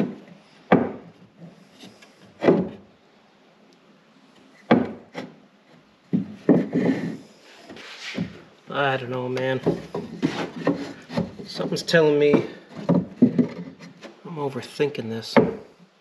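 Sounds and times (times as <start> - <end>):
wooden boards knocking and rubbing: 0.0 - 2.9, 4.6 - 8.6, 9.3 - 14.2, 15.3 - 15.8.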